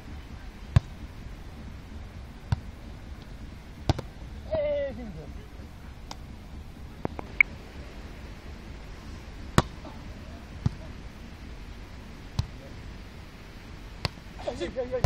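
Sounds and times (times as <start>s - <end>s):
low background noise: 0.0s - 15.0s
volleyball hits: 0.7s - 1.0s, 3.8s - 4.1s, 9.6s - 9.8s, 10.6s - 10.9s, 12.4s - 12.6s, 14.0s - 14.2s.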